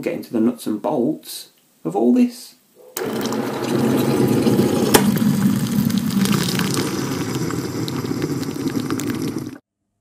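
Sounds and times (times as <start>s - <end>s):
hot water dispenser motor humming: 3.0s - 9.6s
water pouring into mug: 3.0s - 9.6s.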